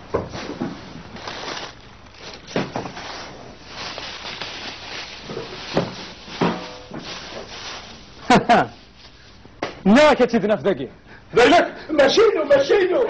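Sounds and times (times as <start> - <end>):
room noise hiss: 0.0 - 13.0.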